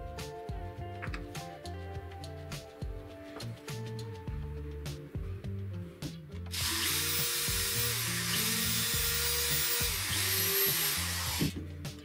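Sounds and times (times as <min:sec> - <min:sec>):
background music: 0:00.0 - 0:12.0
cordless drill running: 0:06.5 - 0:11.6.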